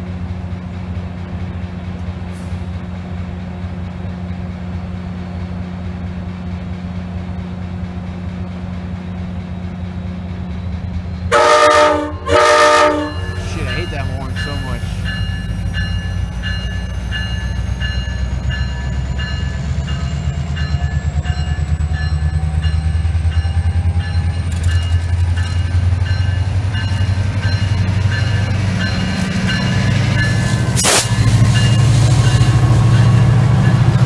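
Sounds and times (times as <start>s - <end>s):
diesel locomotive engine rumbling: 0.0s - 34.0s
bell ringing: 13.0s - 34.0s.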